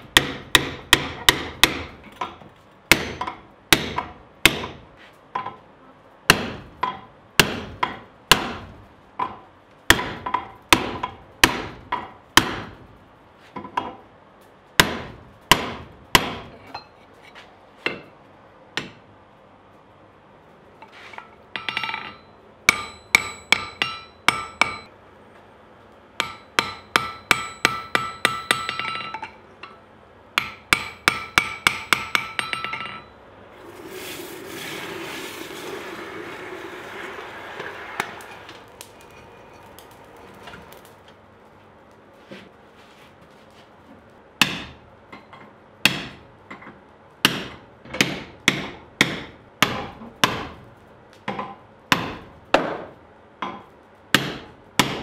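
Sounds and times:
hammer ringing on hot steel: 0:21.6 - 0:24.9, 0:26.2 - 0:29.8, 0:30.4 - 0:33.2.

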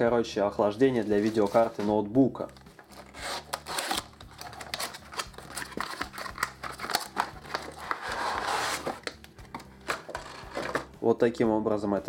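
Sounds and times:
plastic packaging crinkling: 0:02.5 - 0:10.9.

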